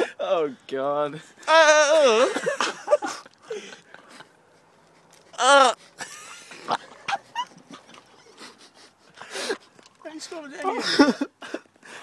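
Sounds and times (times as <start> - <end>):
man's strained vocal cry: 1.4 - 2.5, 5.4 - 5.8.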